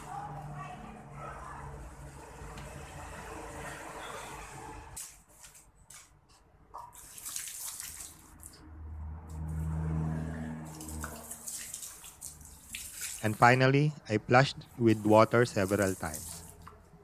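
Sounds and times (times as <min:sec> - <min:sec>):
hose water spraying into metal tank: 0:06.9 - 0:08.6, 0:10.5 - 0:13.8, 0:14.4 - 0:17.0.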